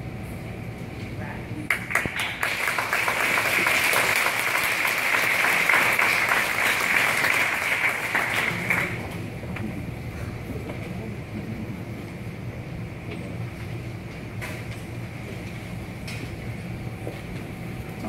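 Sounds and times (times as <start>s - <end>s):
audience applauding: 1.7s - 9.3s.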